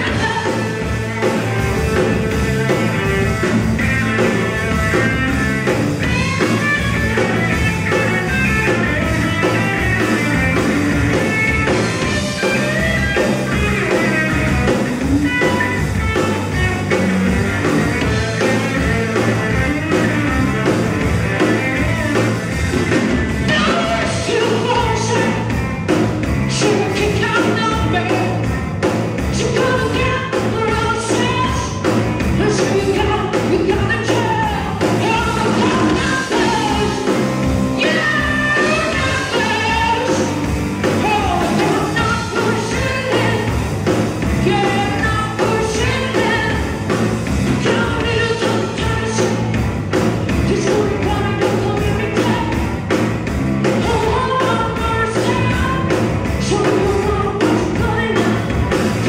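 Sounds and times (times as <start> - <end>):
woman singing: 0.0 - 0.8, 23.5 - 25.5, 26.5 - 28.5, 29.3 - 40.4, 41.0 - 43.6, 44.3 - 46.8, 47.5 - 49.5, 50.4 - 52.6, 53.7 - 59.0
rock band playing: 0.0 - 59.0.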